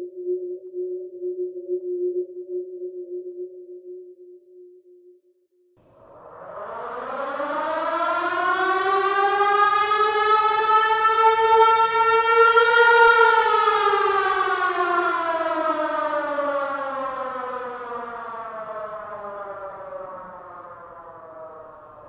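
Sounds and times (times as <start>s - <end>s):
siren wailing: 5.9s - 22.0s.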